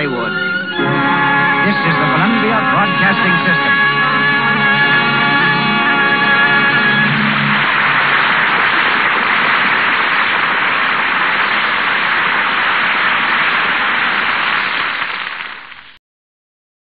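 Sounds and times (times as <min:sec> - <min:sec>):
radio static hiss: 0:05.3 - 0:16.0.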